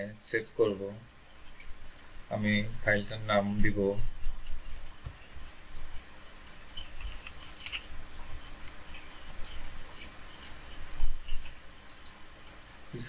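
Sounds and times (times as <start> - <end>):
faint hiss: 0.0 - 13.0
scratchy rustling: 3.8 - 12.2.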